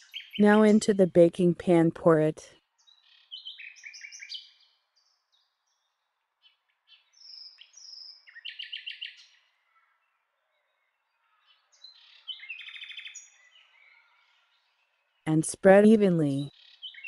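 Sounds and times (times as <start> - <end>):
small birds chirping and trilling: 0.0 - 0.4, 2.7 - 15.2, 16.4 - 17.0.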